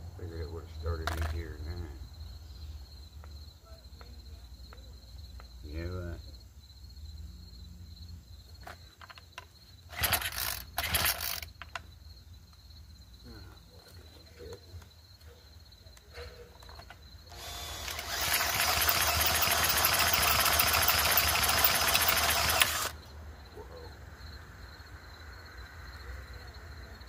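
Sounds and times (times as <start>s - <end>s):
cordless drill spinning engine: 9.9s - 11.5s, 17.3s - 23.0s.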